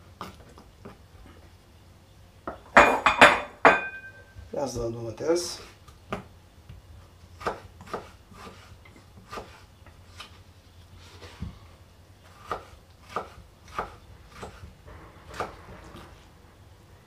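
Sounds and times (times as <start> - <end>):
knife chopping on wooden board: 7.4 - 9.6, 12.3 - 14.7, 15.3 - 16.0.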